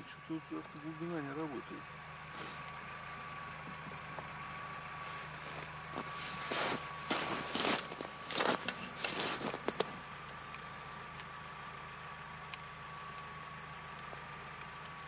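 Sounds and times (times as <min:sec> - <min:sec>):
low mechanical hum: 0:00.0 - 0:15.0
rustling crunching noises: 0:05.0 - 0:10.0.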